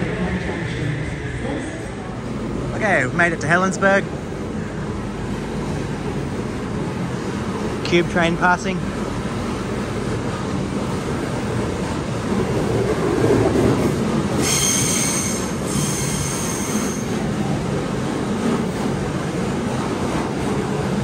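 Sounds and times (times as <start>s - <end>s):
freight train wheels rumbling: 0.0s - 21.0s
high-pitched wheel squeal: 14.4s - 17.2s.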